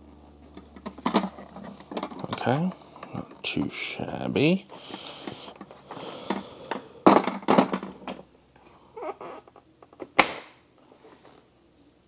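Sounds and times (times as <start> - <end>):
hard plastic parts handled: 0.4 - 8.2
sharp plastic snap: 10.0 - 10.6.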